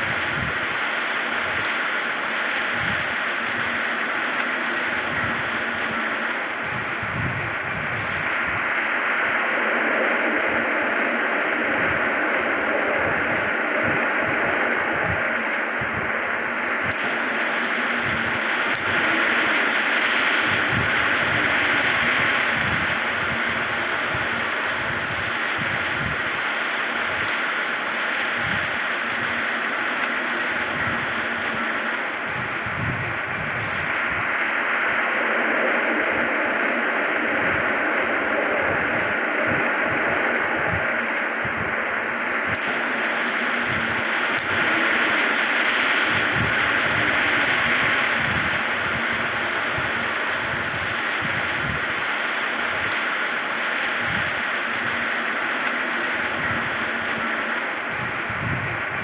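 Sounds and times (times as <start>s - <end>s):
wind hiss on microphone: 0.0s - 59.0s
low wind buffeting thumps: 32.2s - 34.3s, 46.1s - 52.0s, 57.9s - 59.0s.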